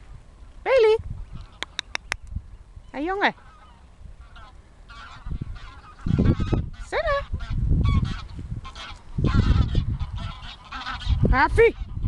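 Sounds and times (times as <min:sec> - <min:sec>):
geese honking: 0:03.3 - 0:12.0.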